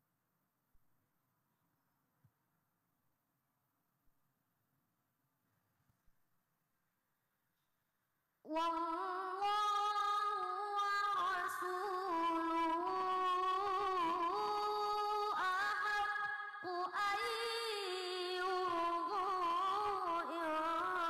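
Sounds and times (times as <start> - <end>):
boy chanting through a microphone: 8.5 - 21.0.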